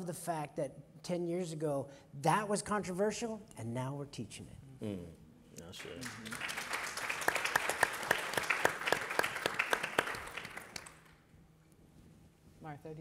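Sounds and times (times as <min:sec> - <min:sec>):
audience applauding: 0:05.8 - 0:11.2.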